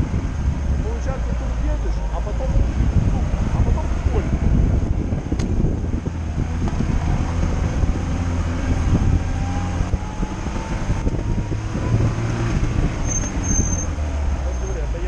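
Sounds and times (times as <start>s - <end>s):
car engine low rumble: 0.0s - 15.0s.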